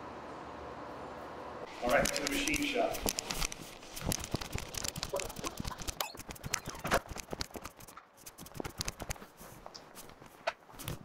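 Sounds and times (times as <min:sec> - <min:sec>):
camera handling clicks and rustles: 0:02.0 - 0:07.8.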